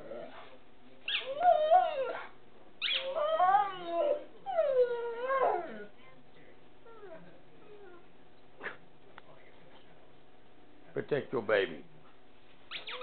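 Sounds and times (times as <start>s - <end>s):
dog whining howls: 1.1s - 5.9s.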